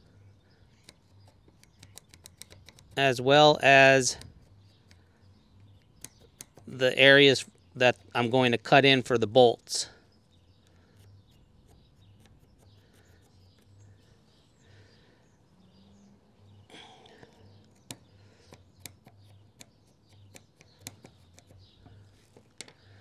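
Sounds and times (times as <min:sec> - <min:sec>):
faint bird chirps: 0:00.0 - 0:23.0
faint scratching on wood: 0:10.8 - 0:14.0.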